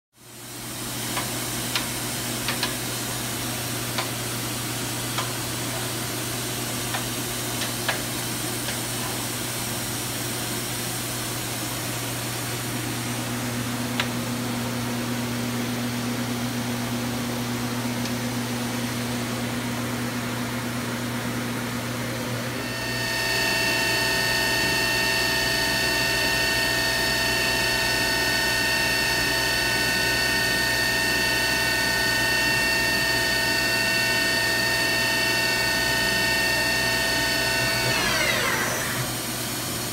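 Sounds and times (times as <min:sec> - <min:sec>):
spindle high-pitched whine: 0:22.6 - 0:39.4.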